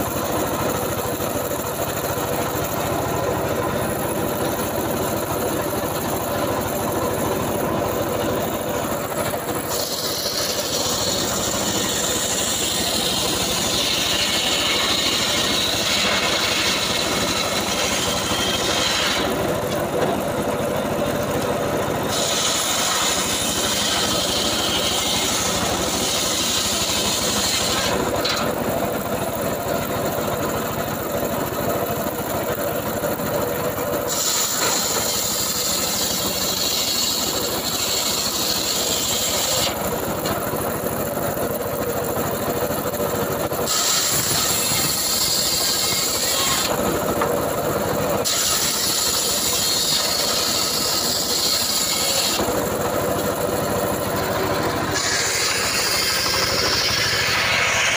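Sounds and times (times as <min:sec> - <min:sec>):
sawmill machine drone: 0:00.0 - 0:57.9
saw blade hissing in wood: 0:22.1 - 0:28.4, 0:34.1 - 0:39.8, 0:43.7 - 0:46.8, 0:54.4 - 0:57.9.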